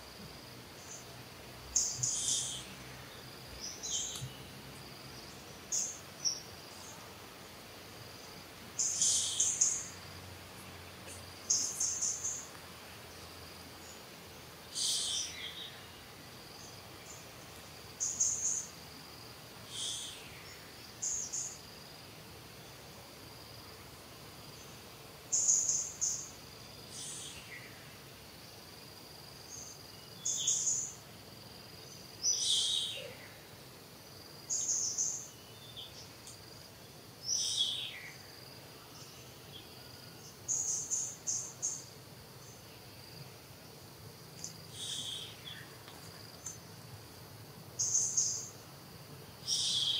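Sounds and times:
faint high insect drone: 0.0 - 49.9
birds chirping: 0.8 - 7.2, 8.1 - 18.8, 44.4 - 46.7, 49.4 - 49.9.

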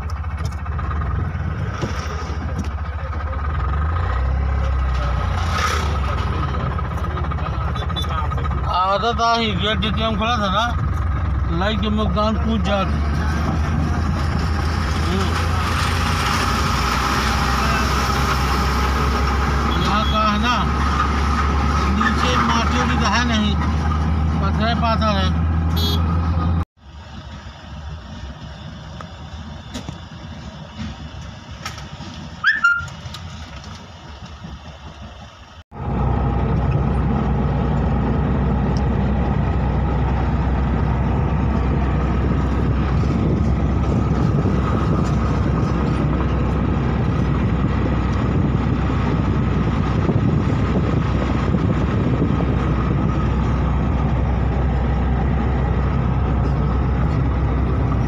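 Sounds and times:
engine and road noise in a van: 0.0 - 58.0
street traffic noise: 0.0 - 58.0.

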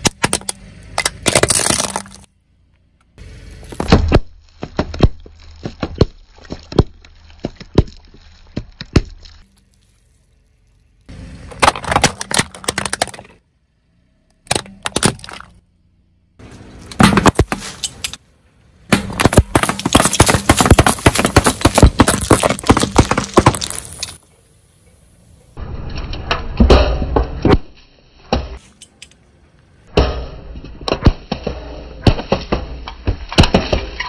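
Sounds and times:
bottles and cans bursting: 0.0 - 2.3, 18.9 - 24.2
car tyre crushing objects: 0.0 - 15.8, 16.4 - 24.2, 29.8 - 34.0
drink cartons crunching: 19.2 - 24.2.

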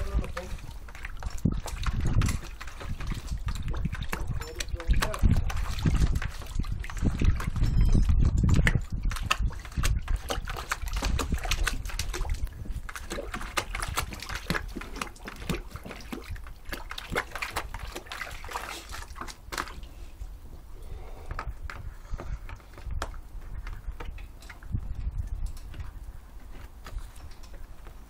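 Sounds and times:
dog splashing water in bucket: 0.0 - 20.1, 21.3 - 28.0.

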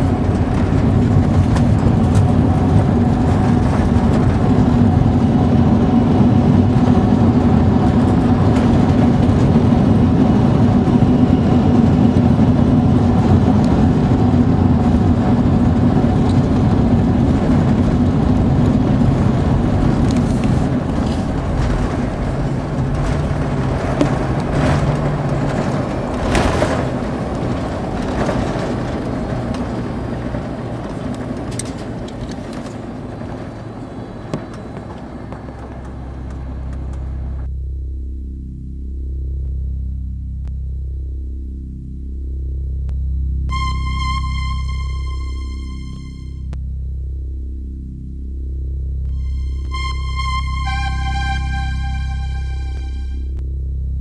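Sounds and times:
rushing air: 0.0 - 30.7
jet engines droning: 0.0 - 37.6, 43.5 - 46.6, 49.0 - 53.4.

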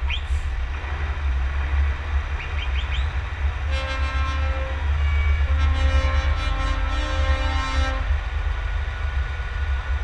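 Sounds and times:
truck engine rumble: 0.0 - 10.0.

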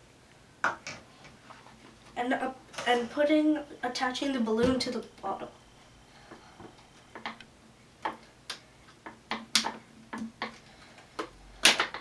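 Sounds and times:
plastic bottle and balloon clicks: 8.0 - 10.6, 11.2 - 12.0.

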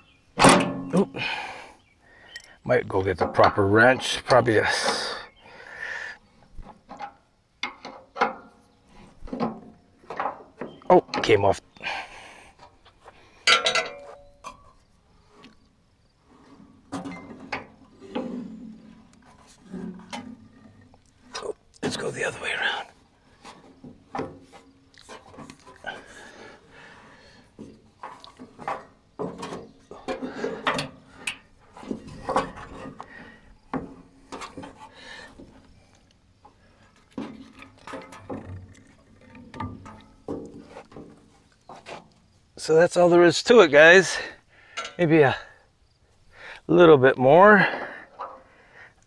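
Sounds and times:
knocks and clicks in metal housing: 0.4 - 1.2, 6.8 - 8.6, 13.4 - 14.7, 37.2 - 42.0
metal tools clinking and knocking: 13.3 - 14.9, 44.1 - 45.4.

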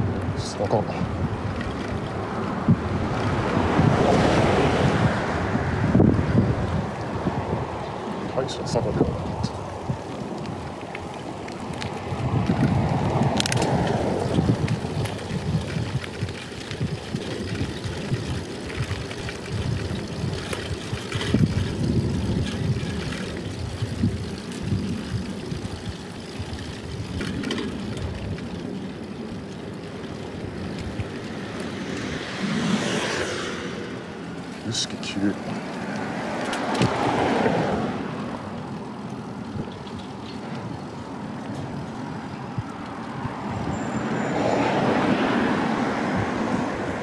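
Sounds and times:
bike tyre and road noise: 0.0 - 47.0
wind buffeting microphone: 0.0 - 47.0.

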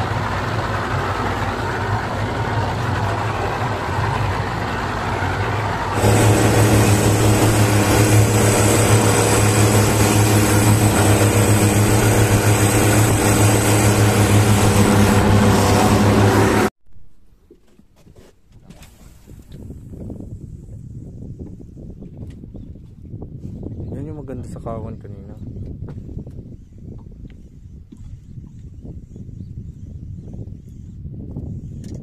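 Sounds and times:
speedboat engine drone: 0.0 - 16.7
water rushing past hull: 0.0 - 16.7
wind noise: 0.0 - 16.7, 18.6 - 32.0.

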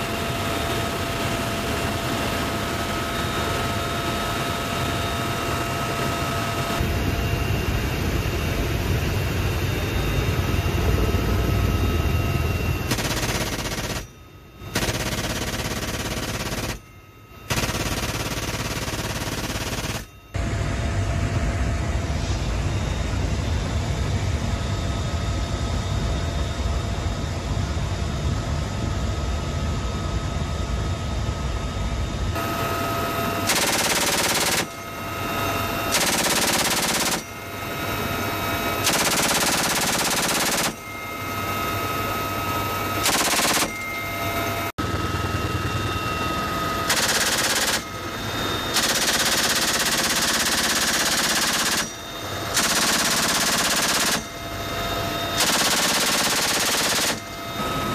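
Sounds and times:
helicopter rotor and turbine: 0.0 - 57.9
heavy machine gun bursts: 12.9 - 14.1, 14.7 - 16.8, 17.5 - 20.1, 33.5 - 34.8, 35.9 - 37.3, 38.8 - 40.8, 43.0 - 43.8, 46.9 - 48.0, 48.7 - 54.4, 55.4 - 57.4.

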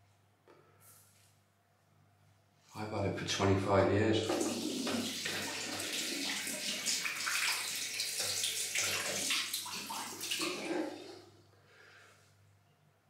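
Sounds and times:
tap water splashing into sink: 4.2 - 11.1.

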